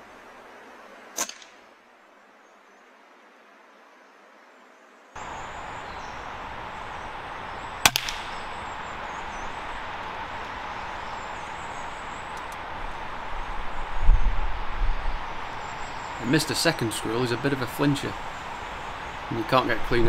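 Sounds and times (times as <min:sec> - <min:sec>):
steady background hiss: 0:00.0 - 0:20.0
air rifle shot: 0:01.2 - 0:01.6, 0:07.8 - 0:08.5.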